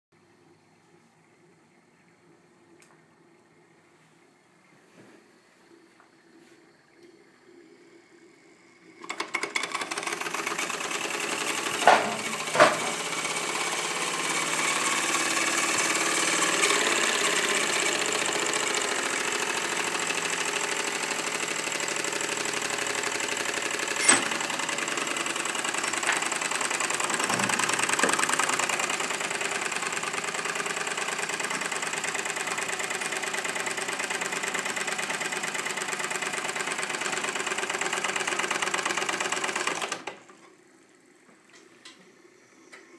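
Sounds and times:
steam engine mechanical clatter: 9.0 - 40.3.

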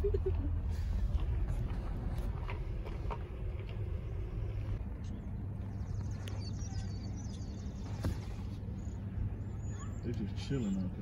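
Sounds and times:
car engine rumbling: 0.0 - 11.0
faint bird chirps: 5.7 - 11.0.

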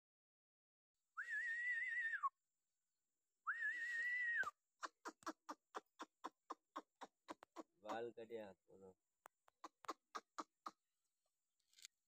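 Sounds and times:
long wavering high whistles: 1.2 - 2.3, 3.5 - 4.5.

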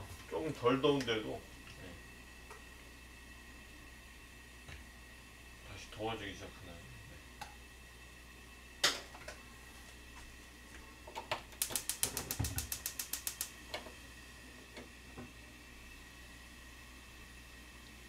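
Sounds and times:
gas igniter clicking rapidly: 11.5 - 13.6.

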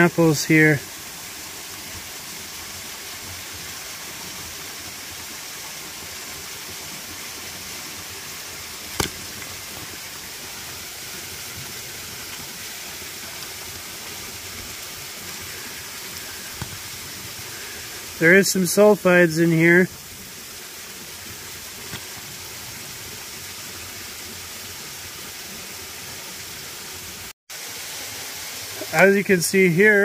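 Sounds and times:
waterfall rushing: 3.9 - 22.5
sharp knock: 9.0 - 9.2.

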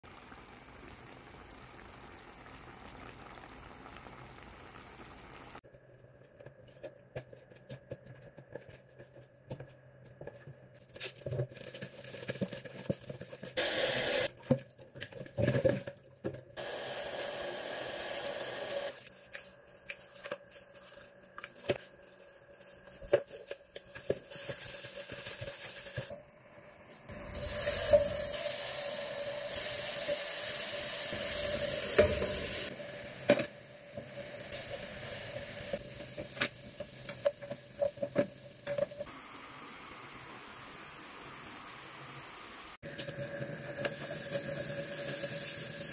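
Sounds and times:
chicken sizzling in hot oil: 0.0 - 5.6, 16.6 - 19.1, 22.5 - 45.9.

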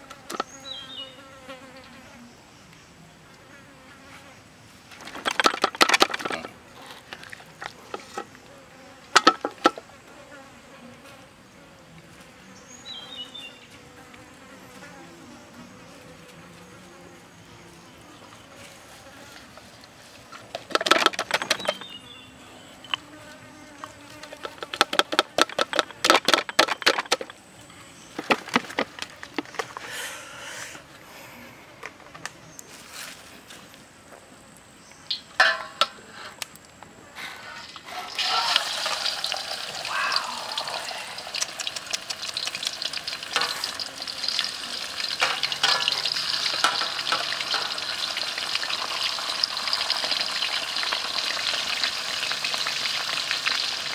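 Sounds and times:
insects buzzing: 0.0 - 31.8, 32.6 - 53.9
hands rubbing seasoning into meat: 40.1 - 45.0.

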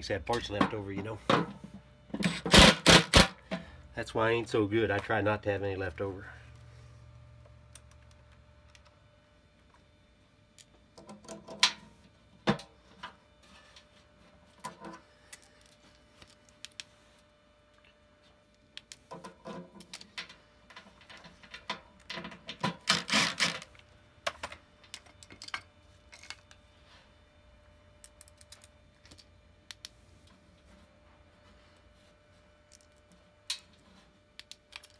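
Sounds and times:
metal parts and tools clinking: 24.4 - 26.6, 34.4 - 34.9.

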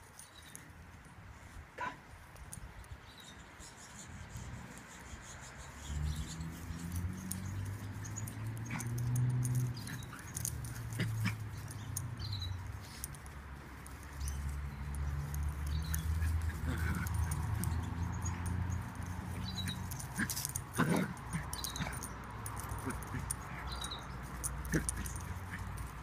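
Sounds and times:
dogs growling: 6.6 - 12.0, 15.7 - 26.0.

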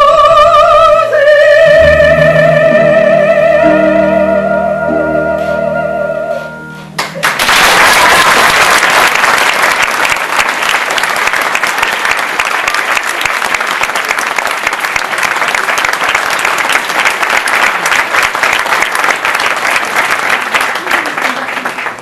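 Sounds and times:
audience applauding: 7.0 - 22.0.

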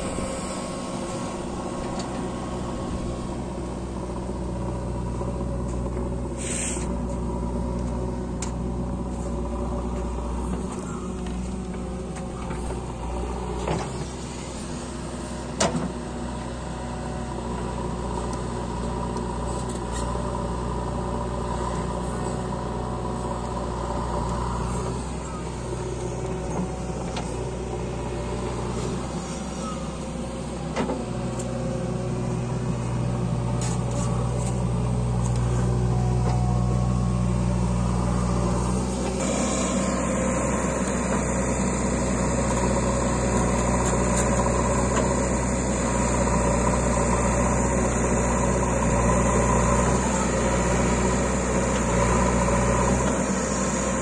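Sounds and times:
backhoe diesel engine: 0.0 - 54.0
tractor engine running: 0.0 - 54.0.

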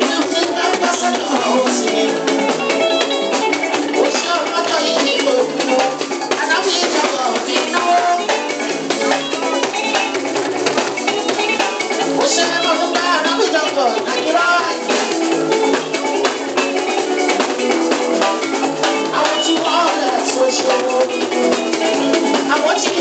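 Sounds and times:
person singing into microphone: 0.0 - 9.9, 12.1 - 16.0, 19.0 - 23.0
drums and shaker rhythm: 0.0 - 23.0.

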